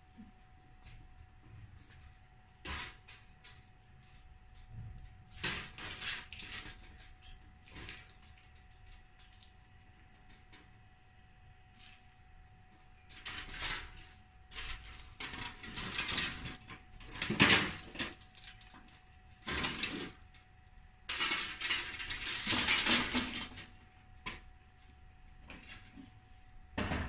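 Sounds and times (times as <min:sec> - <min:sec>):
clattering of objects handled: 0:00.2 - 0:09.6, 0:13.1 - 0:20.4, 0:21.1 - 0:24.5.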